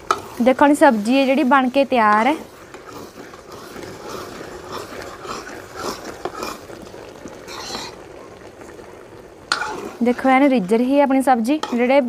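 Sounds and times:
curry bubbling: 0.0 - 12.0
ladle stirring and knocking pan: 0.0 - 12.0.

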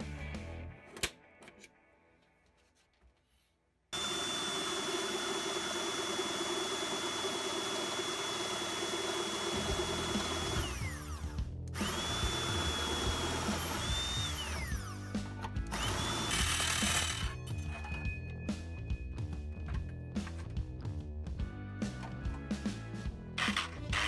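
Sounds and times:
electric drill boring into steel: 4.0 - 15.1, 15.7 - 17.6, 23.4 - 24.0.

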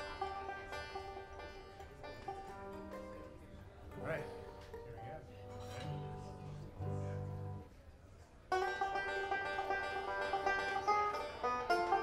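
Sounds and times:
bluegrass string band: 0.0 - 12.0
picked banjo: 0.0 - 12.0
low held notes: 3.9 - 7.7.

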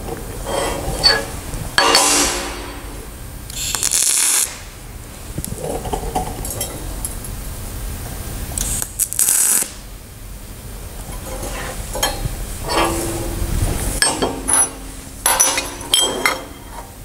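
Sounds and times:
welding arc hissing: 0.0 - 5.6, 8.4 - 10.1.

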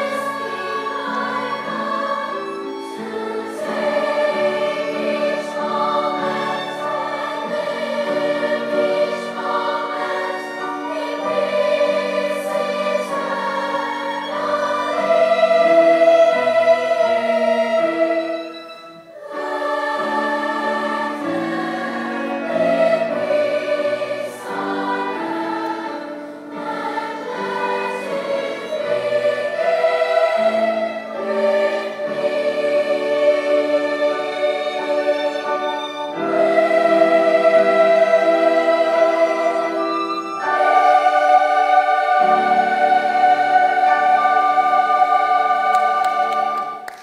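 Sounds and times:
choir singing in harmony: 0.0 - 47.0.

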